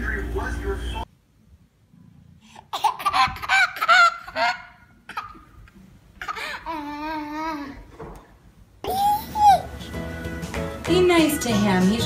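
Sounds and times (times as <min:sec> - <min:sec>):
baby squealing: 0:08.8 - 0:09.8.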